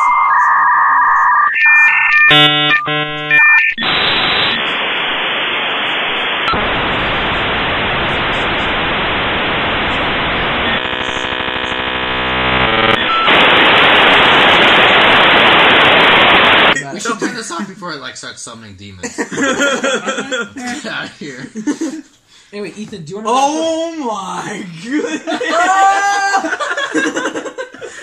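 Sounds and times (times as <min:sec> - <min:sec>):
modem beeping and warbling tones: 0:00.0 - 0:06.8, 0:08.2 - 0:16.8
static hiss: 0:02.7 - 0:17.6
rasping buzz: 0:09.5 - 0:16.6.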